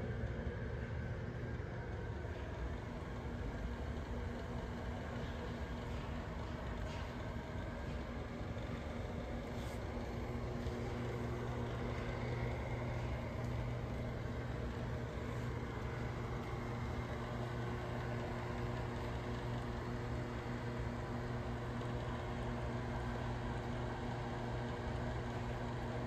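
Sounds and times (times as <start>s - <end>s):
household appliance humming: 7.8s - 26.0s.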